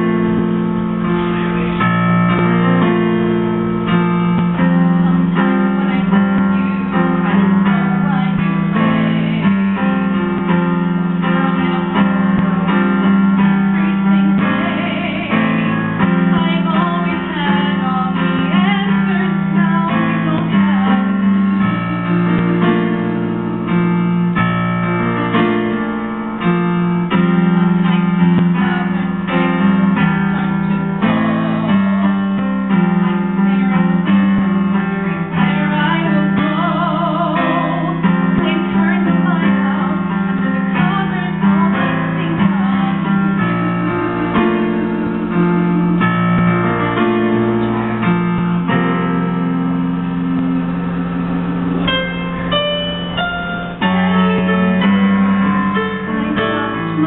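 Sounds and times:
piano accompaniment: 0.0s - 57.0s.

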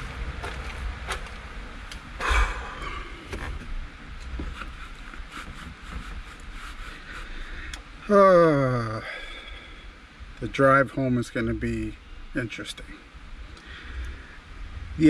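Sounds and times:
low rumble: 0.0s - 4.3s.

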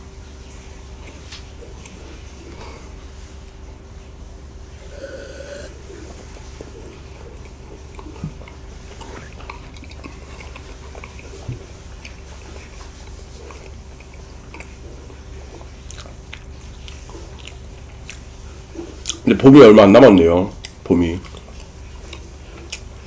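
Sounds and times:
steady low hum: 0.0s - 23.0s
chewing bread: 4.8s - 19.4s, 20.0s - 23.0s.

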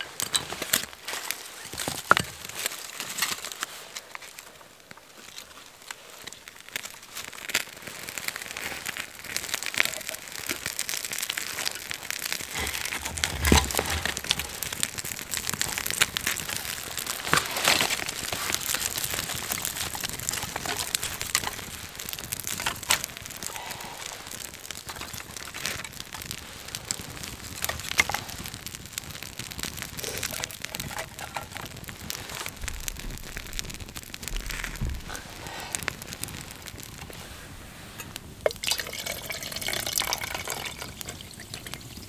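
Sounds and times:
bark crackling on fire: 0.0s - 42.0s
kindling sticks snapping: 8.3s - 26.4s, 29.2s - 37.2s
thud: 34.3s - 35.3s.

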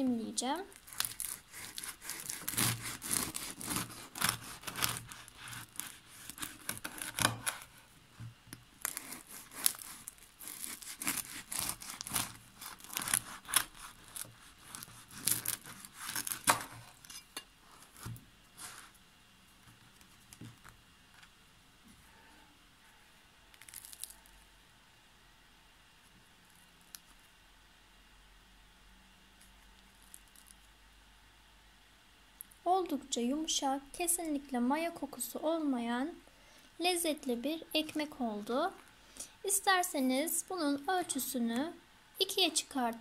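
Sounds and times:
knife sawing through bread crust: 0.9s - 7.8s, 8.8s - 16.9s.

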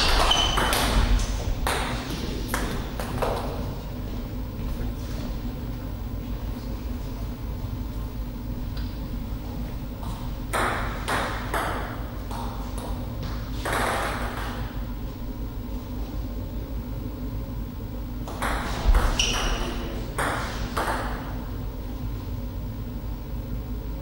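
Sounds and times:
table tennis ball bouncing: 0.0s - 3.6s, 10.4s - 14.8s, 18.2s - 21.4s
steady low hum: 0.0s - 24.0s.

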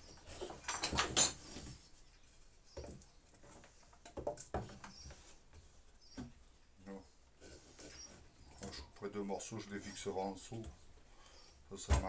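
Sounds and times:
wood knocks and scrapes: 0.0s - 6.4s
wood pieces clattering: 0.2s - 1.6s.

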